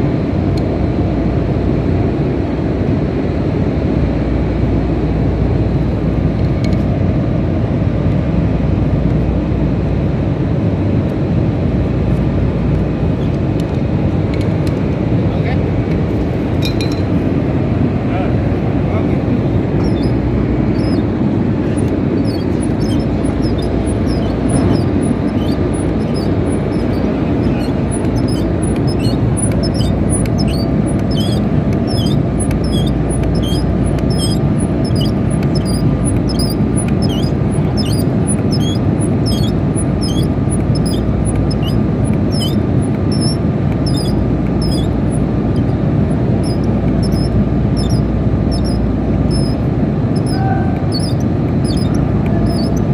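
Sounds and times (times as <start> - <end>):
hydraulic pump running: 18.4 - 52.9
short high squeak: 19.8 - 52.9.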